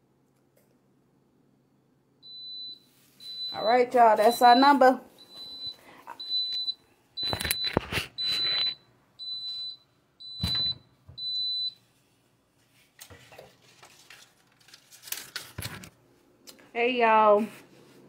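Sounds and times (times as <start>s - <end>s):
high electronic timer beeps: 2.3s - 11.8s.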